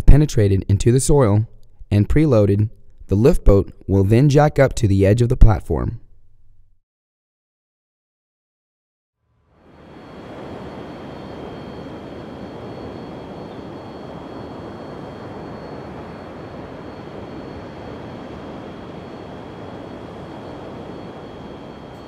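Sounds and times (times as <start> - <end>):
steady rumbling noise: 0.0 - 6.8, 9.6 - 22.0
faint high whines: 9.3 - 22.0.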